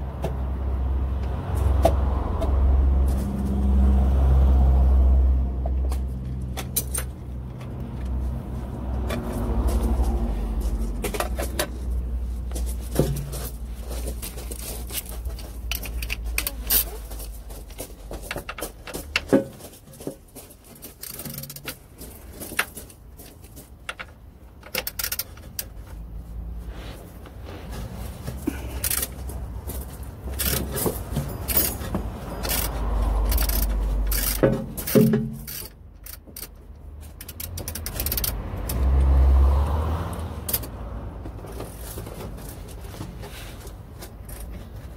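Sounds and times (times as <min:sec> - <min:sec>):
metal clinks of ratchet and socket: 0:15.7 - 0:17.0, 0:21.0 - 0:21.8, 0:23.9 - 0:25.7, 0:28.8 - 0:29.2, 0:30.3 - 0:38.8.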